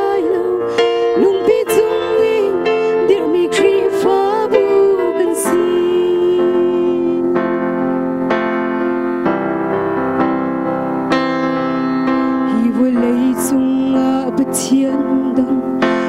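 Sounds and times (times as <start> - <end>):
woman singing: 0.0 - 7.6, 12.4 - 16.0
keyboard playing held chords: 0.0 - 16.0.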